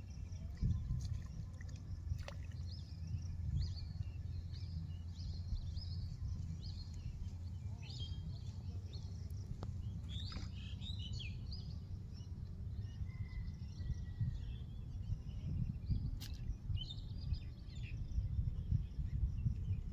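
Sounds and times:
birds chirping: 0.0 - 13.5
steady low rumble: 0.0 - 19.9.

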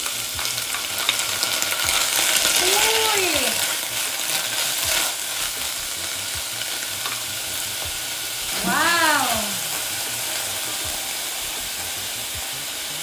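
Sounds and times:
onion sizzling in oil: 0.0 - 13.0
short wordless voice sound: 8.6 - 9.6.

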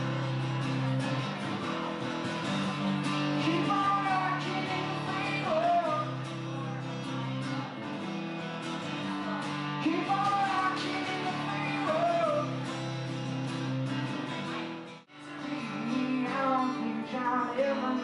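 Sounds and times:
acoustic guitar: 0.0 - 18.0
man singing: 2.4 - 7.5, 9.1 - 12.8, 15.3 - 18.0.

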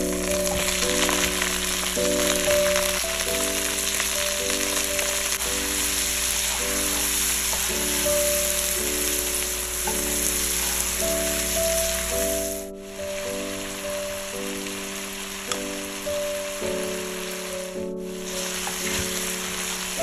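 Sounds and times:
background music with held chords: 0.0 - 20.0
meat and onions sizzling in oil: 0.0 - 20.0
spatula stirring in a wok: 5.4 - 11.9.

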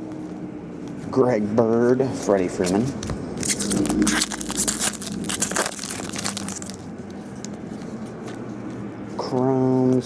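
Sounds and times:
foil wrapper tearing and crinkling: 3.4 - 7.6
cards rustling: 3.4 - 8.9.

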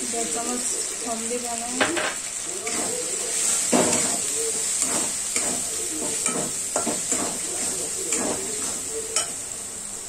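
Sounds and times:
frying hiss: 0.0 - 10.0
spatula scraping pan: 1.9 - 9.4.

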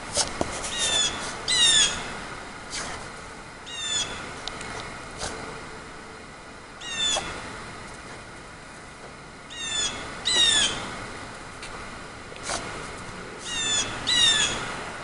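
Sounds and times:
high animal calls: 6.8 - 7.4, 13.4 - 14.7.

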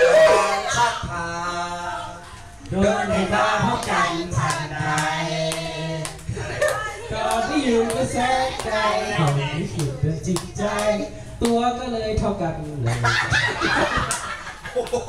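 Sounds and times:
group of people singing: 0.0 - 11.5
hand claps: 3.8 - 11.6, 14.0 - 15.0.

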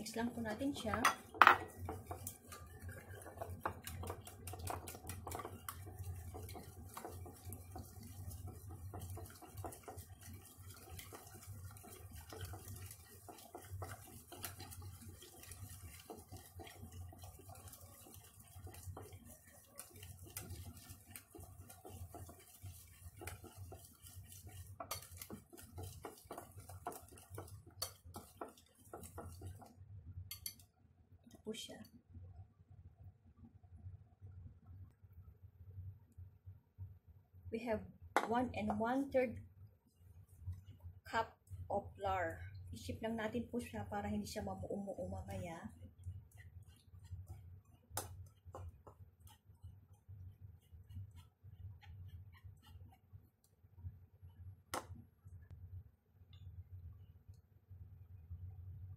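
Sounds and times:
whisk clicking against bowl: 0.2 - 30.6, 45.1 - 53.5.

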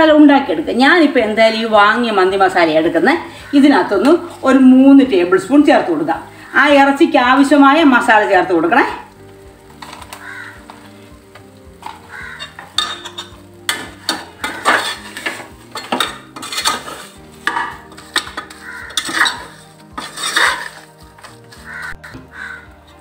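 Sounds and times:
onions sizzling in oil: 0.0 - 23.0
spoon scraping inside pot: 11.8 - 22.1.

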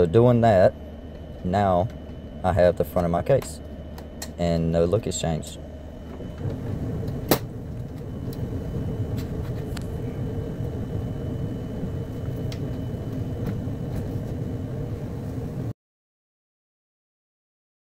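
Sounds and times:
steady low rumble: 0.0 - 15.8.

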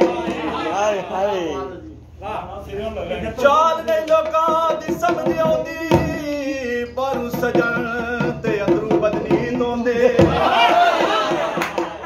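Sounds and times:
dholak drum beat: 0.0 - 0.8, 3.6 - 12.0
man singing ornamented melody: 3.4 - 10.4.

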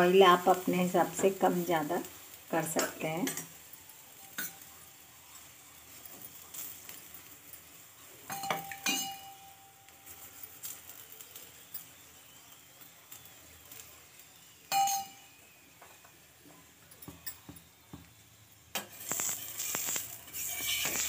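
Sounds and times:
steel spoon clinking on metal: 2.7 - 4.8, 5.9 - 10.7, 14.7 - 15.3, 19.5 - 21.0.

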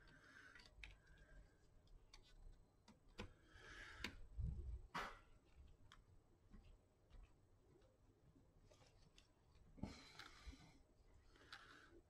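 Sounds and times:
small parts clicking and tapping: 0.0 - 4.3.

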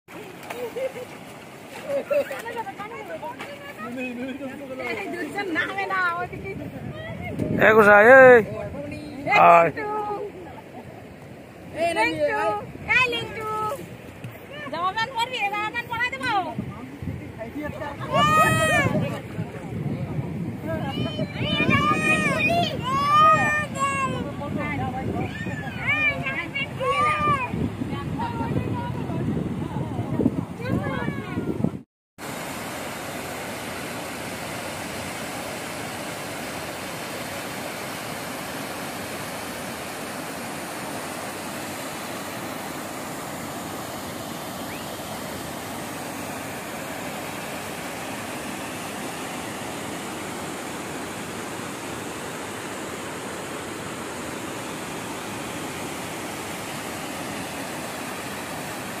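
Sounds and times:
waterfall rushing into pool: 17.8 - 19.2, 20.7 - 27.5, 32.2 - 59.0.

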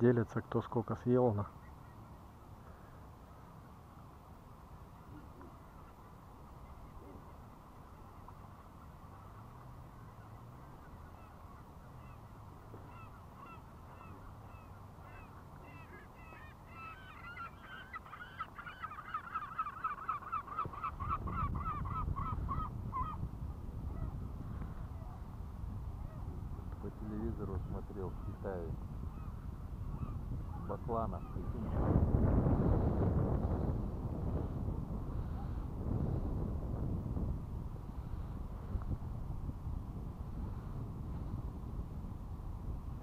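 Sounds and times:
birds calling: 5.0 - 25.3, 26.0 - 31.8.

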